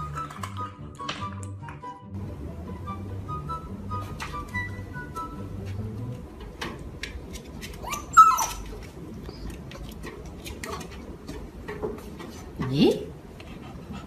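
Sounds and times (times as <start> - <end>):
paws clicking and scuffling: 5.6 - 12.7, 13.3 - 14.0
puppy whimpering: 7.8 - 9.6.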